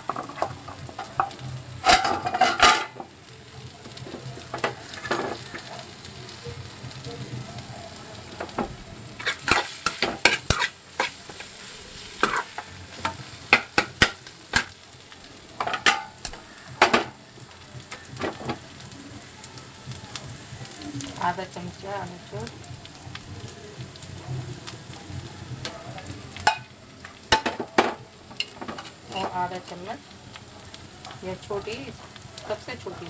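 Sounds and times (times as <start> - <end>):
soft sizzle of frying: 0.0 - 33.0
steel spatula scraping pan: 0.1 - 3.0, 9.2 - 14.7.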